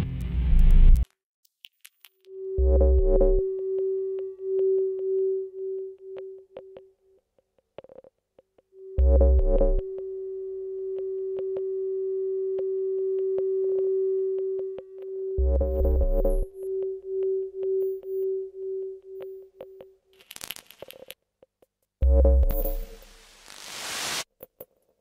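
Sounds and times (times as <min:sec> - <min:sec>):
pulsing synthesizer tone: 0:02.3 - 0:06.9, 0:08.8 - 0:19.8
scattered clicks: 0:06.0 - 0:08.7, 0:19.1 - 0:21.8.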